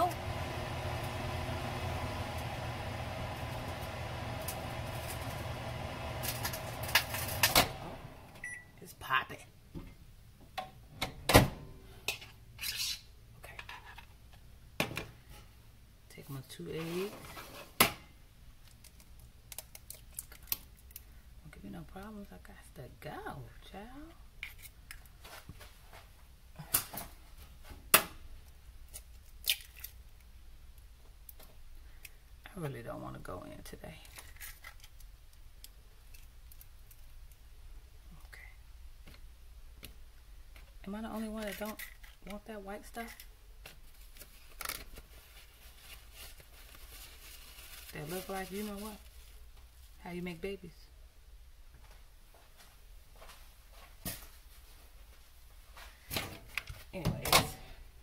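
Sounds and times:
microwave oven humming: 0.0s - 8.7s.

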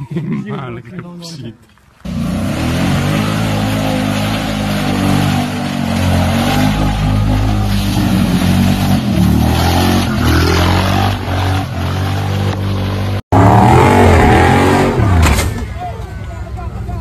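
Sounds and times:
mud and water spraying: 2.0s - 14.9s
engine revving under load: 2.0s - 15.5s.

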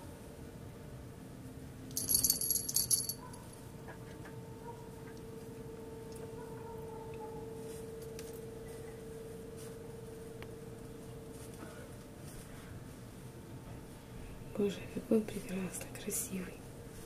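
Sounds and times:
faint steady hum: 0.0s - 17.0s
metallic jingling: 2.0s - 3.4s.

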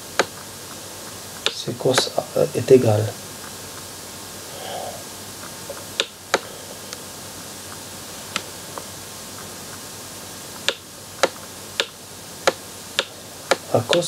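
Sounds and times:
faint hiss: 0.0s - 14.0s
stylus clicking on tablet: 6.0s - 6.4s, 10.6s - 14.0s.

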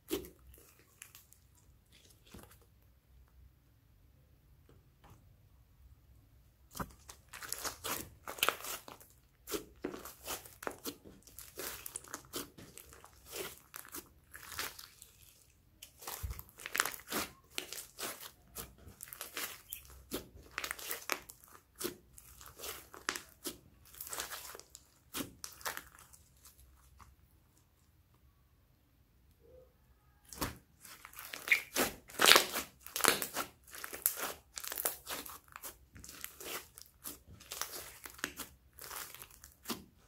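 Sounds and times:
slime crackling and popping: 6.7s - 27.1s, 30.3s - 40.0s.

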